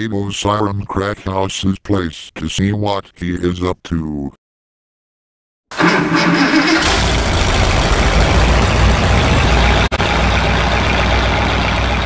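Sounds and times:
car engine starting and running: 0:05.7 - 0:12.0.

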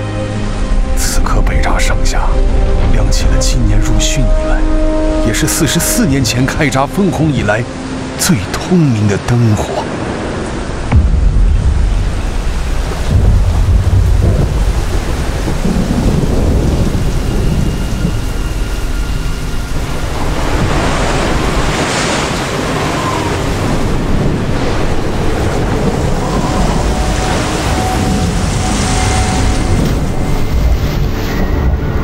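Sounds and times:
heavy rain hissing: 0:09.5 - 0:32.0
heavy thunder rumbling: 0:09.9 - 0:32.0.

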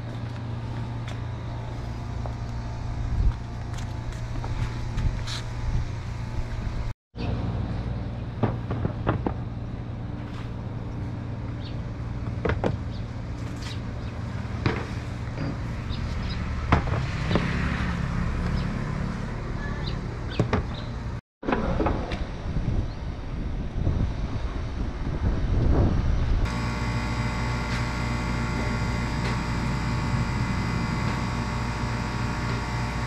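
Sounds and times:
steady low rumble: 0:00.0 - 0:15.9, 0:20.9 - 0:33.0.

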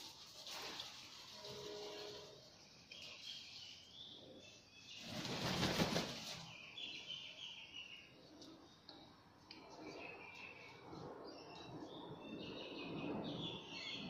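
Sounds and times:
bird wingbeats rushing: 0:05.0 - 0:06.5.

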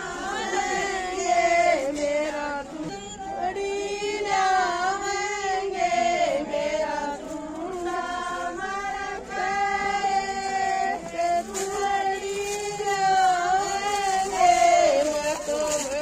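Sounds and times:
women singing in unison: 0:00.0 - 0:16.0.

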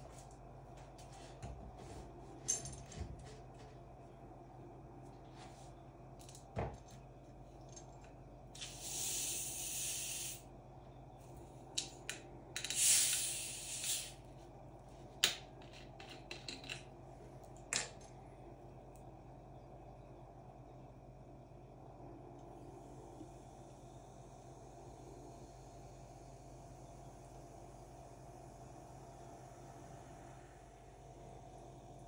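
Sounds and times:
soda bottle gas hissing: 0:08.6 - 0:10.4, 0:12.6 - 0:14.2.

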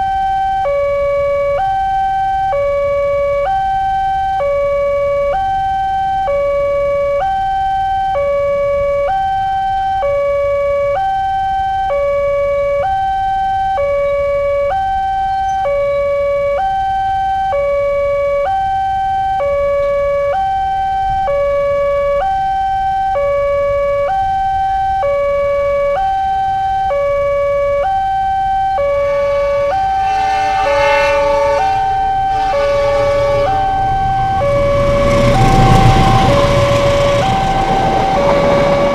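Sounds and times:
two-tone crossing alarm siren: 0:00.0 - 0:38.9
approaching train: 0:28.8 - 0:38.9.

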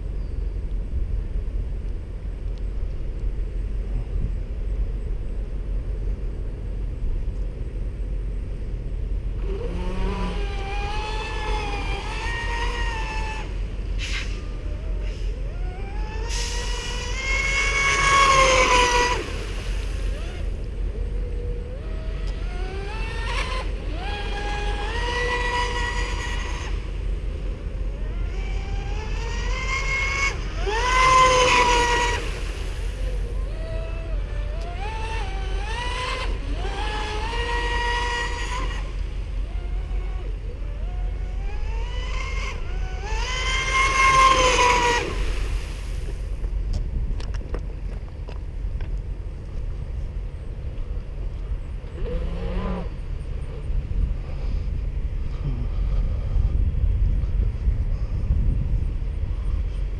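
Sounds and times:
low steady rumble: 0:00.0 - 0:59.9
electric motor whine: 0:09.3 - 0:13.8, 0:14.4 - 0:45.6.

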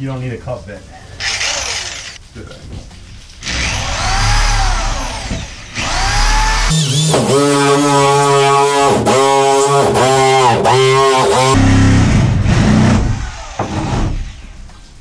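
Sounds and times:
drill grinding: 0:01.2 - 0:02.2, 0:03.4 - 0:14.5
electric drill whining: 0:01.2 - 0:02.2, 0:03.4 - 0:14.4.

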